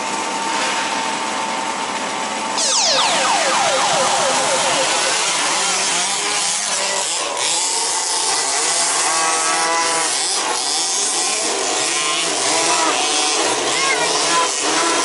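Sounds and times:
remote-control car motors: 5.8 - 15.0.

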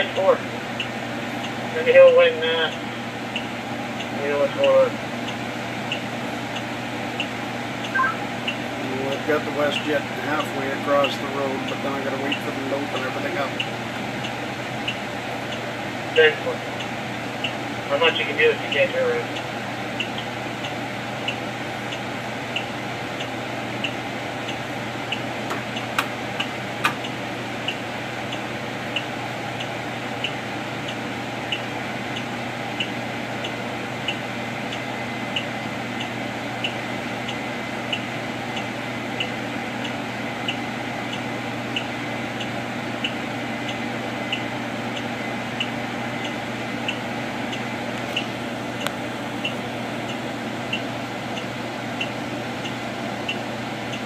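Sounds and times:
light repeating tick: 19.3 - 54.0.

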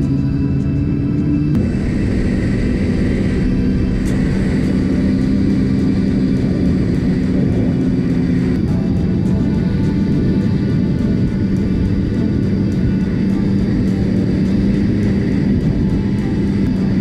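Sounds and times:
snowmobile engine droning: 0.0 - 17.0
track and wind rush: 0.0 - 17.0.

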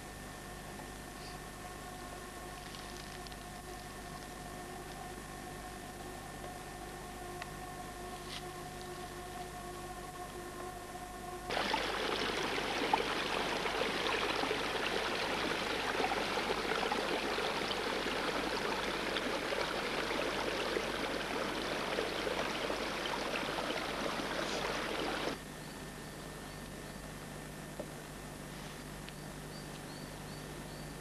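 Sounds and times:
fast-flowing river water rushing: 11.5 - 25.4.

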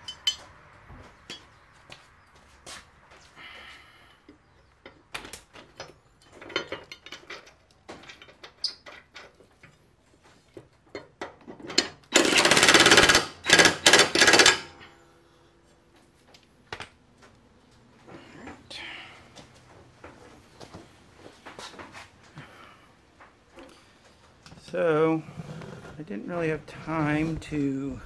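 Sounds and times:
impact driver hammering: 12.1 - 14.7.

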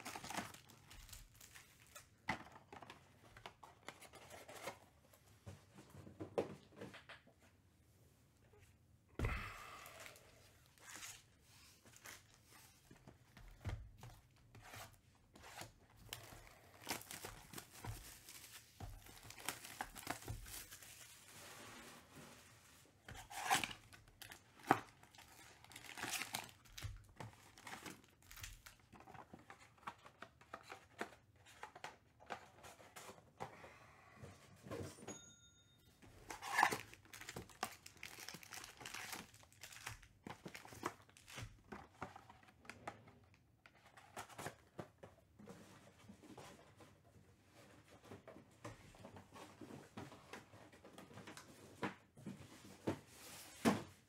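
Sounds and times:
plastic wrap crinkling: 16.0 - 21.4, 23.2 - 29.2, 36.3 - 41.6.

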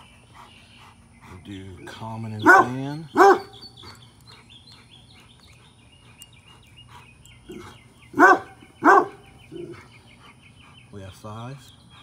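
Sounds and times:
faint high chirping: 0.0 - 12.0
dog barking: 2.4 - 3.6, 8.2 - 9.7.

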